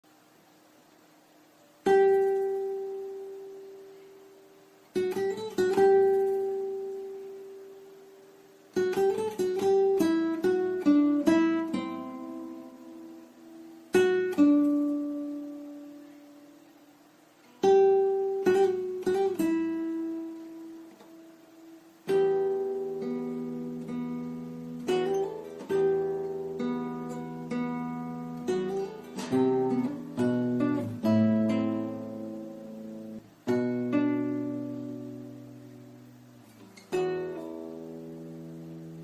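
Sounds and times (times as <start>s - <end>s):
plucked acoustic guitar: 1.8s - 16.7s, 17.4s - 39.0s.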